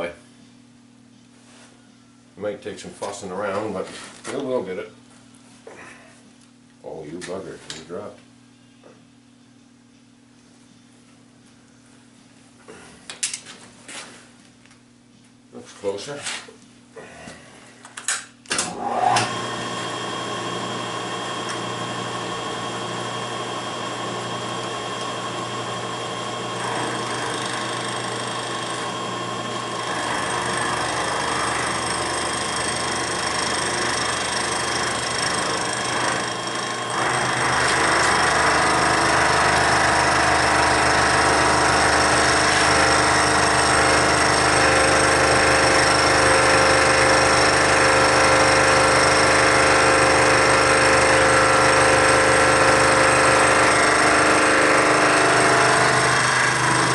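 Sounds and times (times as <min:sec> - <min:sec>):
end mill grinding metal: 0:18.7 - 0:56.9
milling machine whine: 0:18.7 - 0:56.9.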